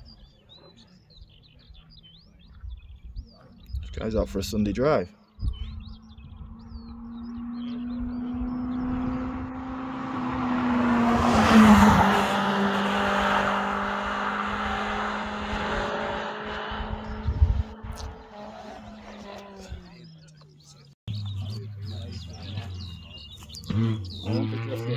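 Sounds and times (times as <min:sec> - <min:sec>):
car driving past: 0:06.1 - 0:19.8.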